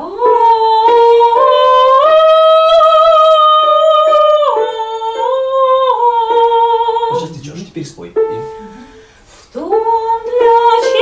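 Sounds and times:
woman singing sustained vowel: 0:00.0 - 0:07.2, 0:08.5 - 0:11.0.

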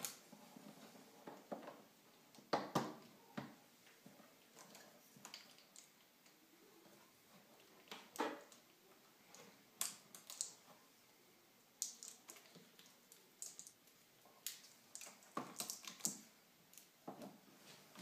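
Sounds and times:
clicks and rustles of handling parts: 0:11.8 - 0:18.0.

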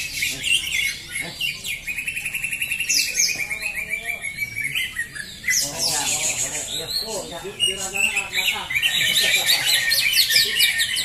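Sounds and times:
birds chirping and whistling: 0:00.0 - 0:11.0
fast rattling bird trill: 0:00.0 - 0:11.0.

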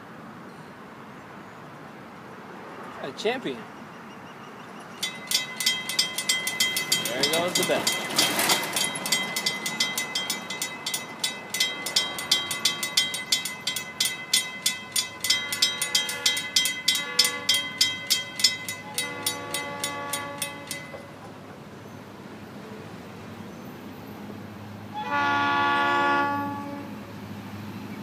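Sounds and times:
truck passing: 0:04.3 - 0:28.0
railroad crossing bell ringing: 0:04.4 - 0:22.8
distant locomotive horn blasts: 0:15.4 - 0:18.0, 0:18.8 - 0:21.2, 0:24.9 - 0:27.2.

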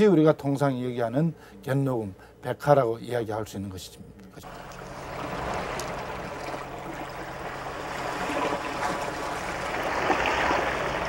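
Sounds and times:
rushing water: 0:04.4 - 0:11.0.

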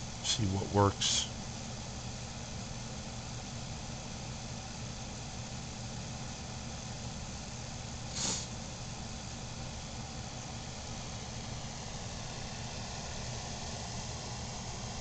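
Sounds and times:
low mechanical hum: 0:00.0 - 0:15.0
brief hiss: 0:08.1 - 0:08.6.

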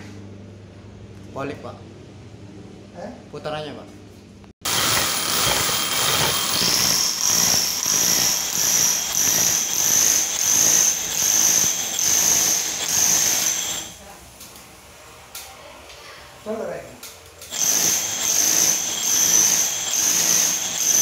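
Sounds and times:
rotary hammer drilling into wall: 0:04.7 - 0:13.9, 0:17.5 - 0:21.0.

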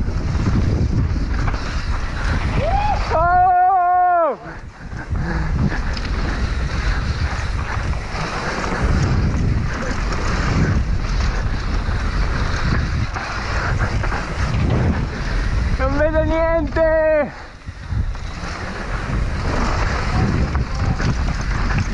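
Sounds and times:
bike knocking and rattling: 0:00.0 - 0:21.9
tyres on loose dirt: 0:00.0 - 0:21.9
wind rushing over microphone: 0:00.0 - 0:21.9.

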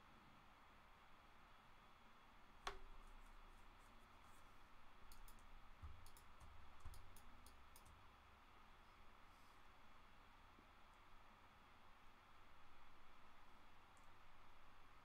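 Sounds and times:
mouse and keyboard clicks: 0:02.6 - 0:03.0, 0:05.1 - 0:08.0.

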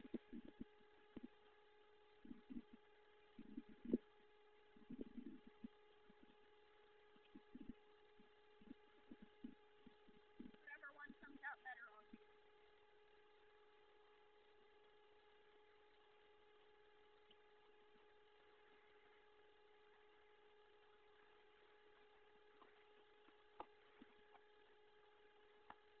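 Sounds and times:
faint electrical hum: 0:00.0 - 0:26.0.

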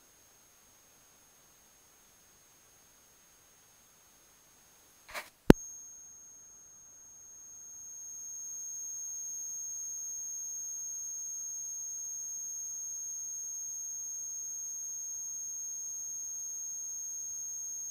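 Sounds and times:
faint hiss: 0:00.0 - 0:06.0.

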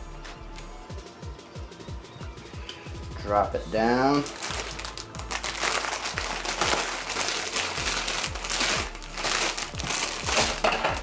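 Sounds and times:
plastic bag crinkling: 0:04.2 - 0:11.0.

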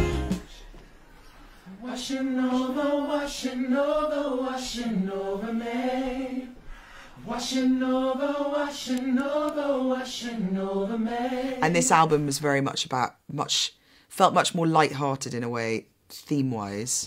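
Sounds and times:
gospel singers singing unaccompanied: 0:00.0 - 0:12.2.

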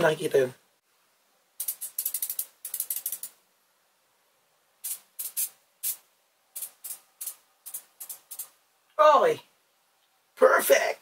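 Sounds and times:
ratchet clicking: 0:01.6 - 0:03.4, 0:06.6 - 0:08.5.

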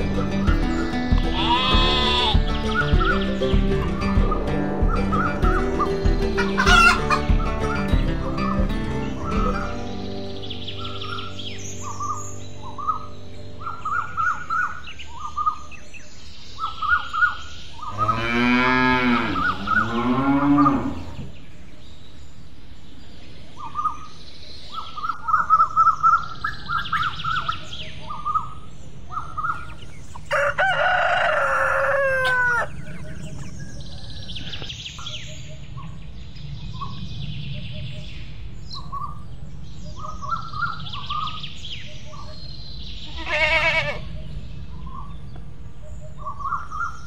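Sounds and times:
drawn-out animal call: 0:00.0 - 0:03.2, 0:04.0 - 0:07.4, 0:43.1 - 0:44.2
cow mooing: 0:01.4 - 0:02.4, 0:17.9 - 0:21.3.

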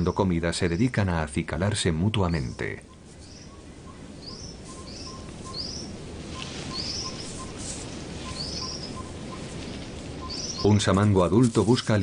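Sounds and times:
low background rush: 0:00.0 - 0:12.0
bird high rising chirps: 0:02.4 - 0:10.7.

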